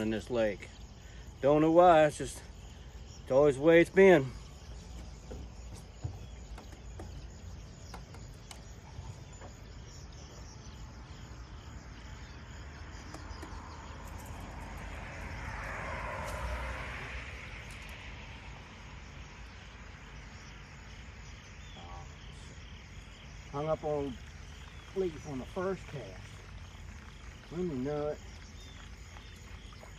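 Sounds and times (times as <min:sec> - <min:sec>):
low outdoor hum: 0:00.0 - 0:29.9
vehicle passing by: 0:13.5 - 0:20.2.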